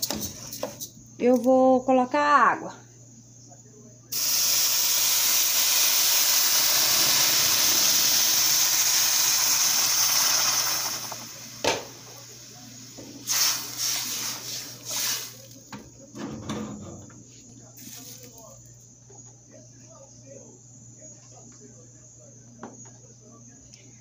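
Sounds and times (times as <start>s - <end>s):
water sizzling in hot pot: 4.2s - 15.4s.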